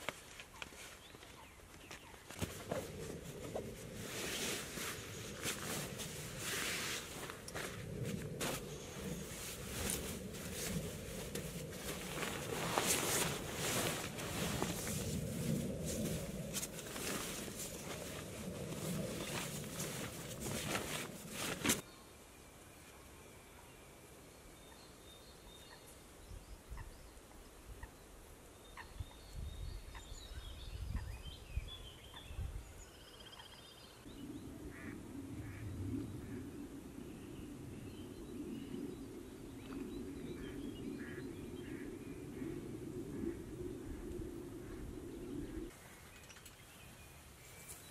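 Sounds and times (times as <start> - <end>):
wind rumbling on microphone: 2.3 - 21.8, 28.8 - 32.9, 34.0 - 45.8
fabric rustling and swishing: 2.4 - 21.8
birds calling and trilling: 28.6 - 43.4.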